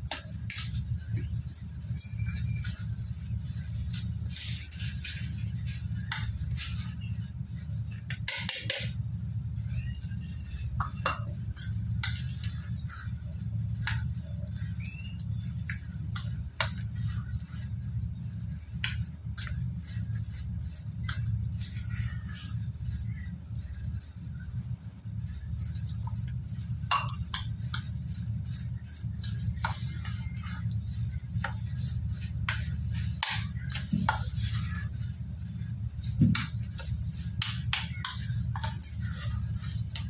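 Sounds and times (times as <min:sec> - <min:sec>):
low hum: 0:00.0 - 0:40.0
spoon clinking on bowl: 0:10.7 - 0:13.1, 0:26.8 - 0:35.1, 0:36.0 - 0:40.0
metal spoon scraping steel bowl: 0:36.0 - 0:40.0.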